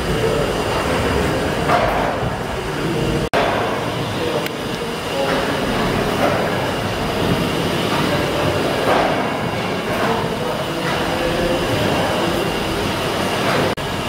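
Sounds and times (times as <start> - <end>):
steam engine clatter and hiss: 0.0 - 14.0.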